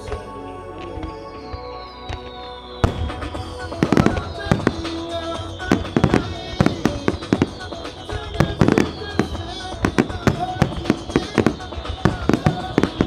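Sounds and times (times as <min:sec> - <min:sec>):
music over loudspeakers: 0:00.0 - 0:13.0
firework shells bursting: 0:02.8 - 0:13.0.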